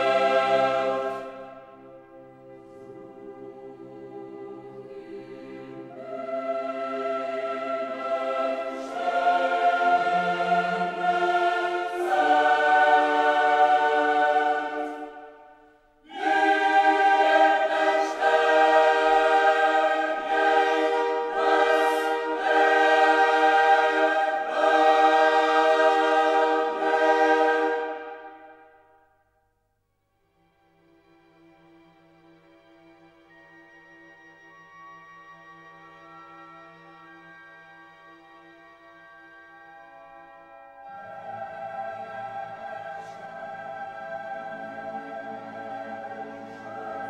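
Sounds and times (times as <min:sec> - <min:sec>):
choir singing held chords: 0:00.0 - 0:29.2, 0:40.2 - 0:47.0.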